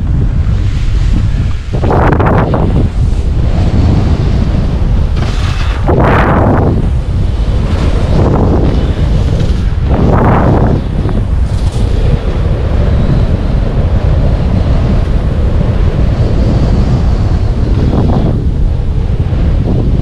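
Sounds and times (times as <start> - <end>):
wind buffeting microphone: 0.0 - 20.0
skis hissing through snow: 0.5 - 6.3.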